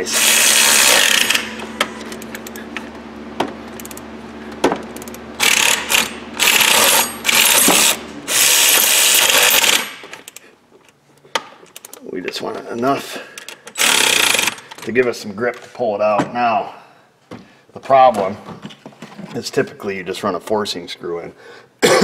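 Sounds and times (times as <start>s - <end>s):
power ratchet driving bolts: 0.1s - 2.5s, 5.0s - 10.5s, 13.7s - 14.8s
ratchet clicks: 3.8s - 4.0s, 13.4s - 14.8s.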